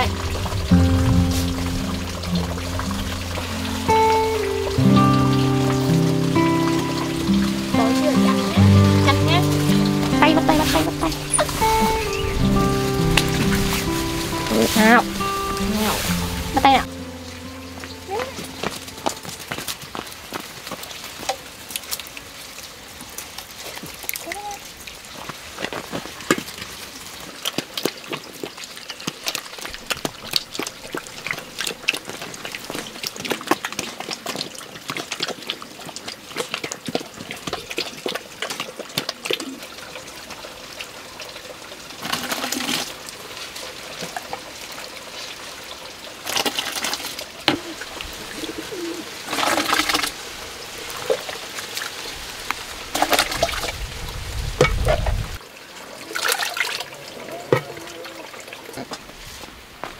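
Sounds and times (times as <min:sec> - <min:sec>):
low rumble: 0:00.0 - 0:03.8
water splashing and trickling: 0:00.0 - 0:59.9.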